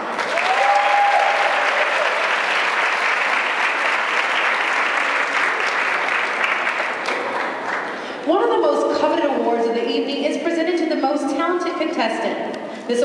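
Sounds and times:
audience clapping: 0.0s - 8.2s.

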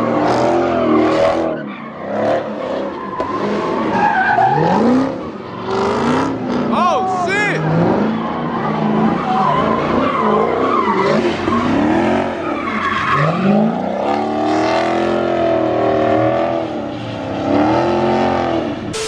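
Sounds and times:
car engine revving: 0.0s - 6.8s, 7.6s - 19.0s
tyres squealing on asphalt: 0.0s - 19.0s.

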